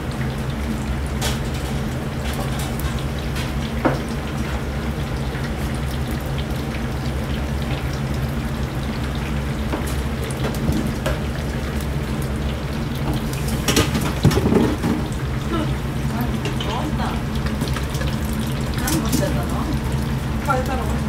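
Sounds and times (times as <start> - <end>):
oil sizzling and bubbling: 0.0 - 21.0.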